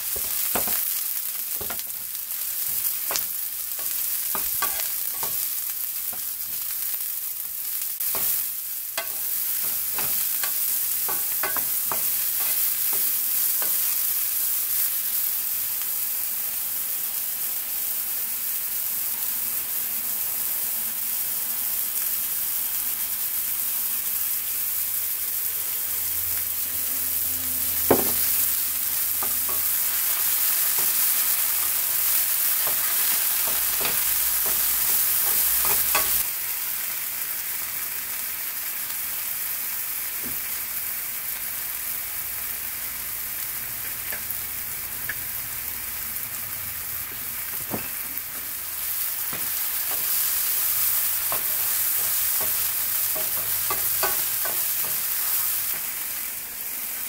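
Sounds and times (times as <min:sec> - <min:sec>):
mushrooms sizzling in frying pan: 0:00.0 - 0:57.0
wooden spoon scraping a pan: 0:00.1 - 0:05.5.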